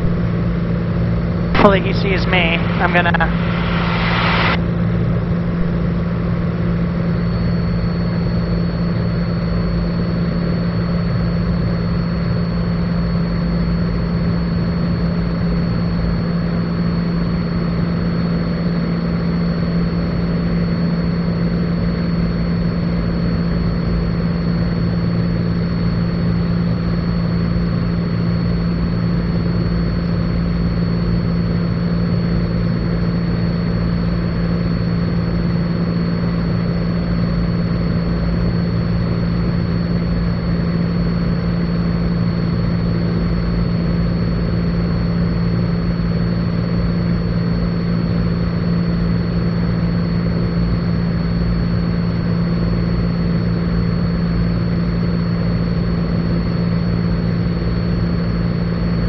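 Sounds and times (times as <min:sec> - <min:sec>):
airplane engine droning in cabin: 0:00.0 - 0:59.0
thin high whine: 0:01.6 - 0:05.9.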